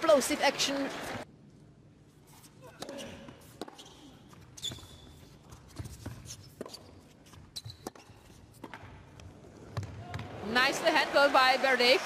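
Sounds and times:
shoe squeaks: 2.4 - 8.6
ball bouncing: 3.6 - 10.3.

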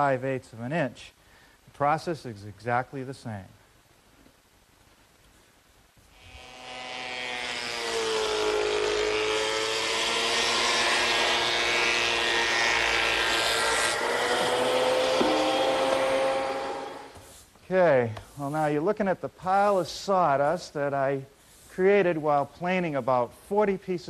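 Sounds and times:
thickness planer cutting board: 6.5 - 17.2.

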